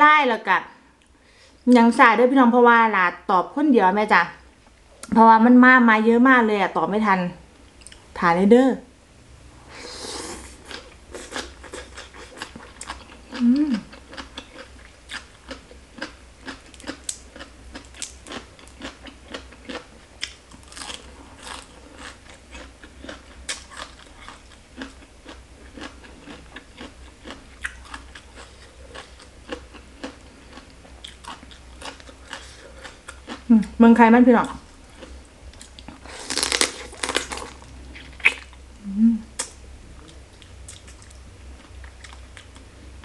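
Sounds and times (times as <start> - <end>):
wet chewing and crunching: 10.5 - 33.5, 34.8 - 38.6, 39.4 - 42.7.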